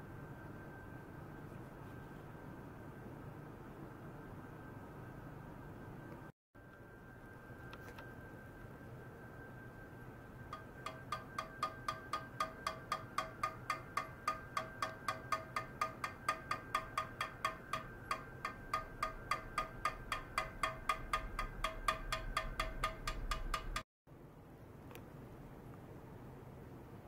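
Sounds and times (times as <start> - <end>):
rod tapping metal tray: 10.5 - 23.8.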